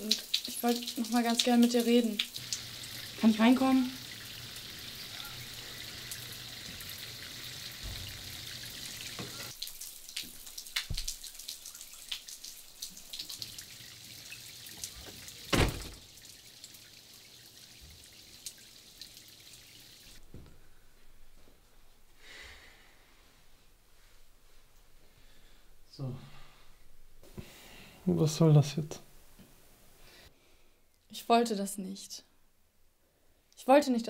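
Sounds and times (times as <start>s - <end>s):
rain hissing: 0.0s - 13.9s
water dripping: 0.0s - 20.2s
loud thump: 15.5s - 16.0s.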